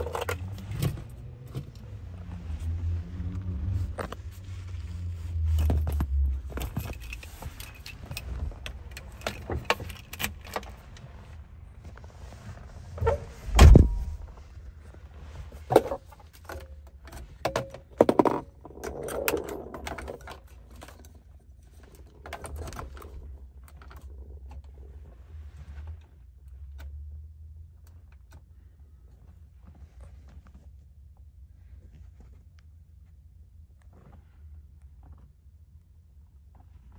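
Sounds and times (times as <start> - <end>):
heavy thump: 13.0 - 14.4.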